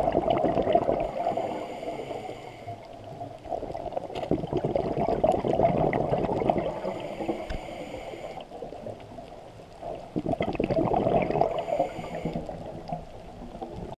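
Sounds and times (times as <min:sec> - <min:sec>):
regulator inhale hiss: 0:01.0 - 0:03.1, 0:06.7 - 0:08.7, 0:11.5 - 0:12.8.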